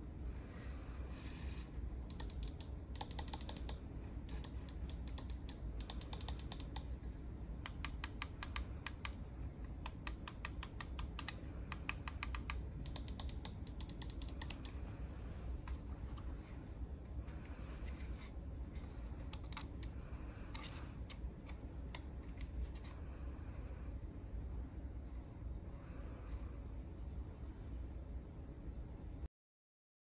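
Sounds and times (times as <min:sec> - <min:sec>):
mouse buttons clicking: 0:02.1 - 0:06.9, 0:07.6 - 0:14.8, 0:19.2 - 0:19.9.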